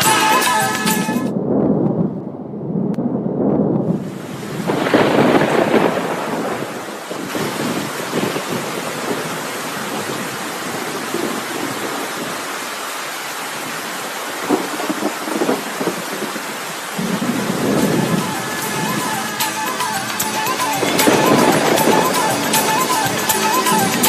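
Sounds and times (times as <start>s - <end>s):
thunder rumble: 1.3s - 12.3s, 14.4s - 24.0s
heavy rain hiss: 4.0s - 24.0s.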